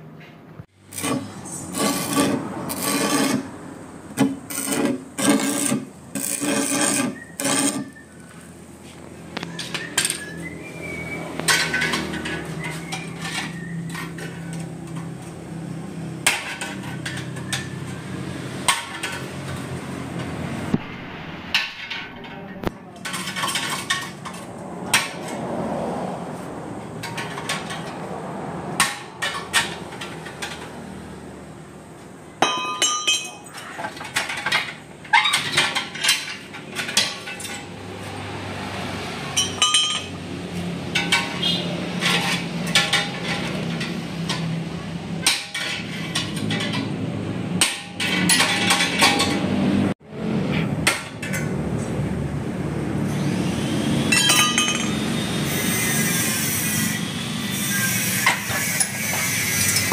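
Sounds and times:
hammer striking metal: 32.4s - 33.4s, 54.1s - 55.1s.

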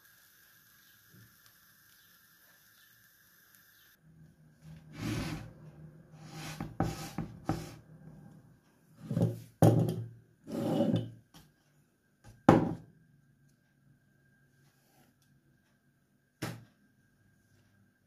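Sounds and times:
plate scraping on wooden board: 4.8s - 5.6s, 6.2s - 7.8s, 9.0s - 9.5s, 10.4s - 11.2s.

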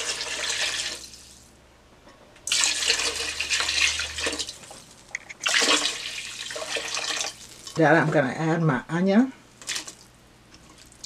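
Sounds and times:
water pouring into a pot: 0.0s - 1.5s, 2.5s - 7.8s
meat sizzling in a pot: 0.0s - 1.6s, 2.5s - 8.0s.

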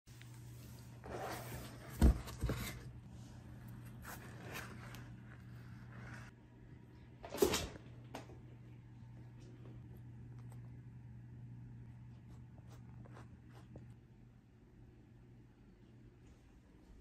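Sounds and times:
cardboard rustling and scraping: 1.0s - 3.0s, 3.7s - 6.3s.

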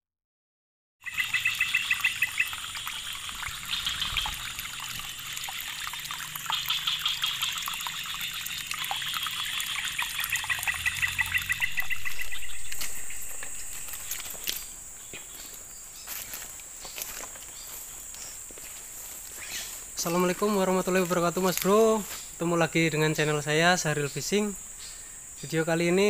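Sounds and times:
water trickling over a drop: 1.0s - 14.8s
rapid pulsed chirping calls: 1.0s - 18.4s, 19.1s - 26.0s
steady high-pitched drone: 9.4s - 15.0s.

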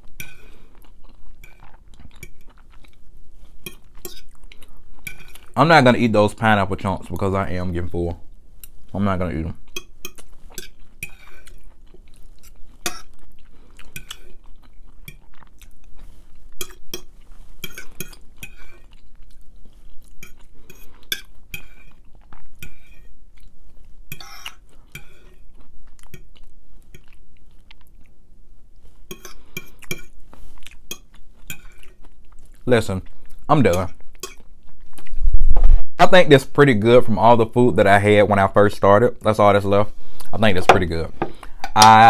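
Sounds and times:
chewing: 0.0s - 5.6s, 9.7s - 28.2s, 28.8s - 35.2s
fork scraping and clinking on plate: 3.6s - 4.4s, 16.6s - 18.9s, 20.2s - 22.0s, 22.6s - 23.1s, 24.1s - 25.4s, 29.1s - 30.2s.

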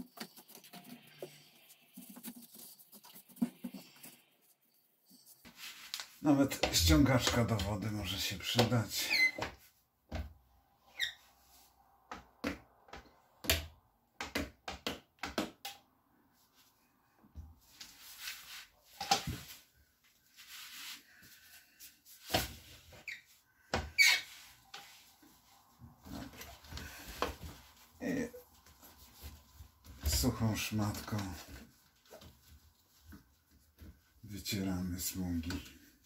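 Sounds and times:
rubber squeegee squeaking on glass: 9.0s - 9.6s, 10.9s - 11.3s, 23.9s - 24.5s.

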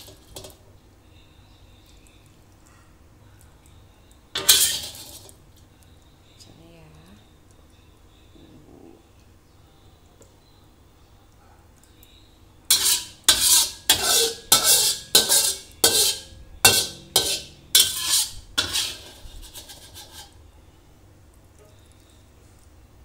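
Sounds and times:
metal spatula scraping a frying pan: 0.0s - 0.6s, 4.4s - 5.3s, 12.7s - 20.4s.

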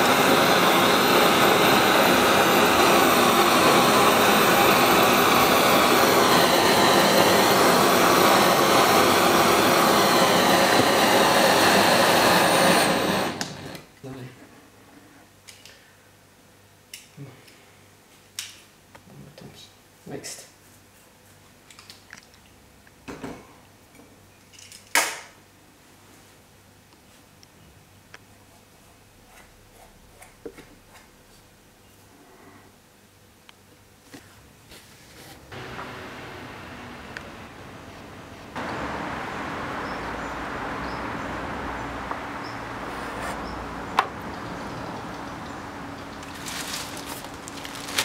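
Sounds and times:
background hiss: 31.3s - 48.0s.

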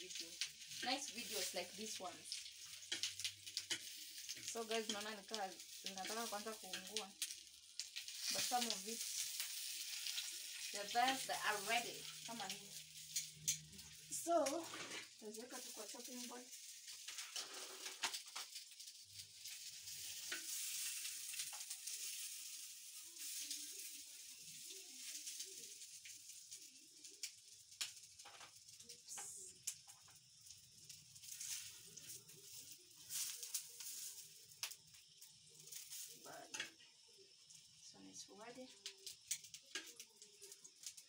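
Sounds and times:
sausages sizzling in oil: 0.0s - 41.0s
utensil clicking against pan: 2.3s - 10.7s, 38.8s - 41.0s.

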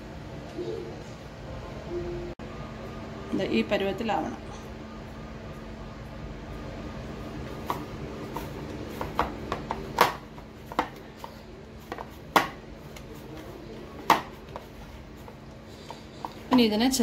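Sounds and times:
faint steady hum: 0.0s - 17.0s
hands kneading dough: 7.3s - 17.0s.

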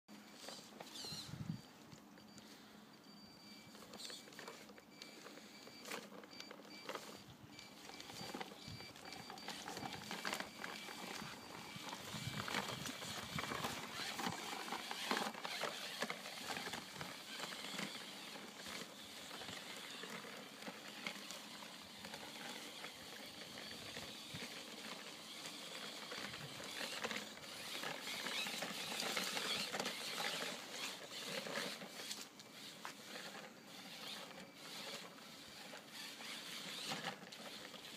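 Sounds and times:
tyres crunching in snow: 8.0s - 37.9s.

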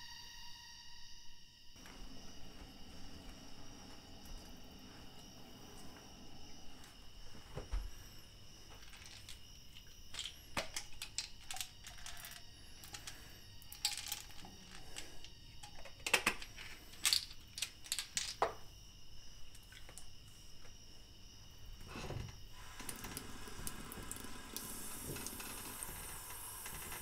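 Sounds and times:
plastic pill bottle rattling: 8.7s - 18.6s.

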